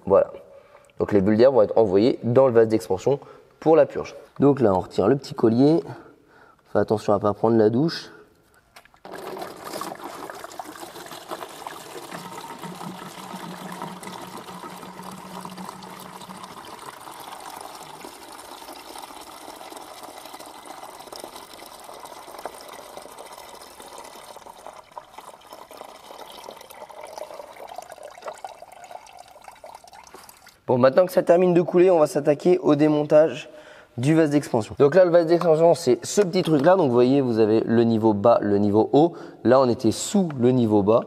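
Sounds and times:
coolant pouring out of hose: 0:09.0 - 0:30.6.

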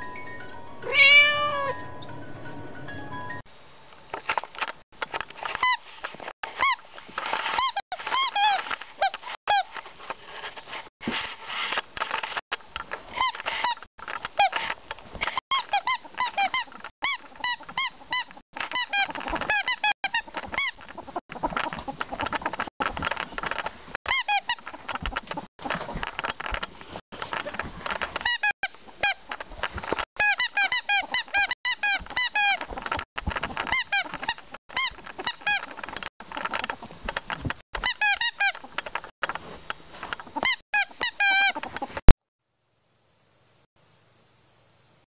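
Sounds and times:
rustling and scuffling: 0:04.1 - 0:15.4.

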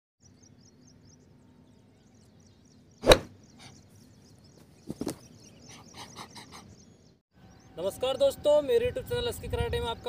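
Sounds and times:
loud sharp smack: 0:03.0 - 0:03.3
quick thumps: 0:03.0 - 0:03.3.

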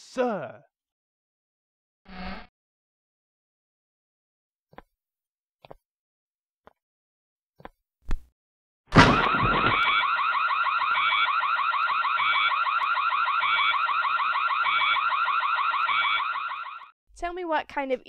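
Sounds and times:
thud: 0:08.9 - 0:10.0
alarm ringing with warble: 0:09.0 - 0:17.0.

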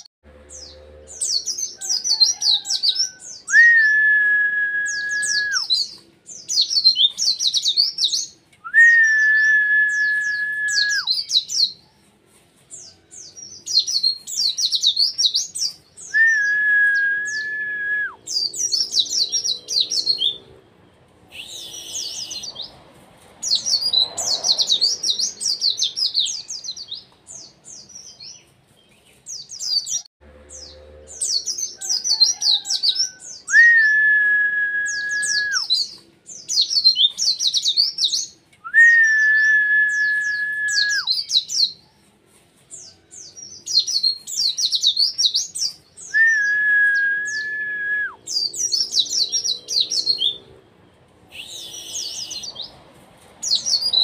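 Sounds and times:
long level bird whistle: 0:00.6 - 0:11.8, 0:13.3 - 0:20.4, 0:21.3 - 0:22.6, 0:31.2 - 0:41.8, 0:43.7 - 0:50.4, 0:51.3 - 0:52.6.

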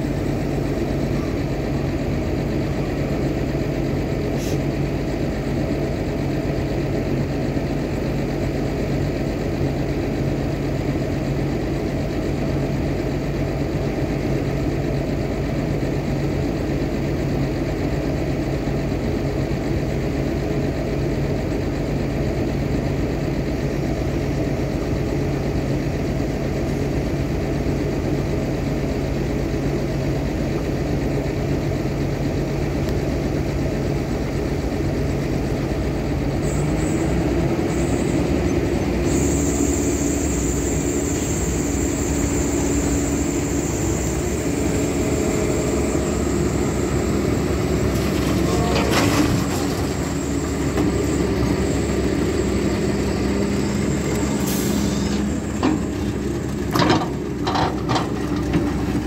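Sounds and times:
excavator diesel engine running: 0:00.0 - 0:59.0
high steady hydraulic whine: 0:00.0 - 0:59.0
metal clunk: 0:55.5 - 0:59.0.

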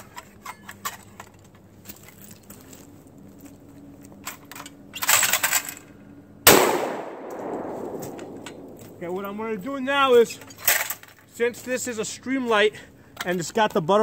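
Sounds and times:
shotgun blast with echo: 0:06.5 - 0:09.0
light handling clicks: 0:07.2 - 0:09.0.

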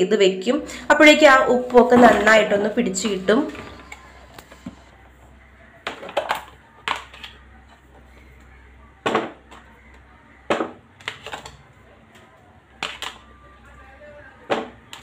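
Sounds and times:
plastic containers knocking and clattering: 0:05.8 - 0:07.4, 0:10.5 - 0:11.6, 0:14.4 - 0:15.0.

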